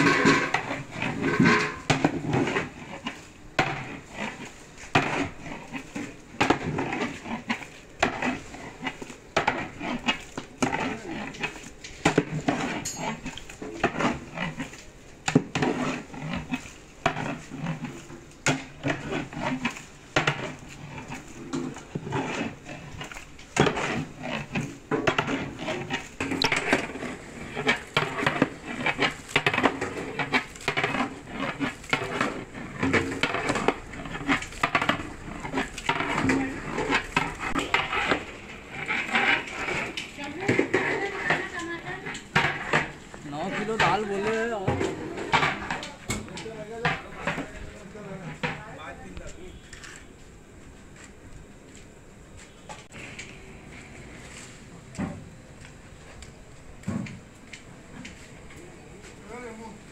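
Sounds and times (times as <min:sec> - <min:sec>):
metal utensils clattering: 0:00.0 - 0:02.8, 0:11.5 - 0:14.6.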